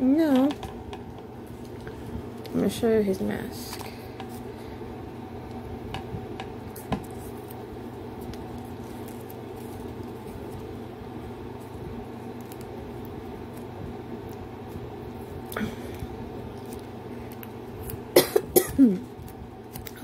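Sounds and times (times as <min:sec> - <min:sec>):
steady low hum: 0:00.0 - 0:20.0
paper wrapping crinkling: 0:06.7 - 0:10.8, 0:11.5 - 0:18.1.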